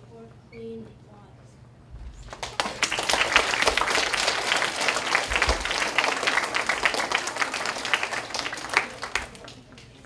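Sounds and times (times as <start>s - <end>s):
children applauding: 2.3s - 9.9s.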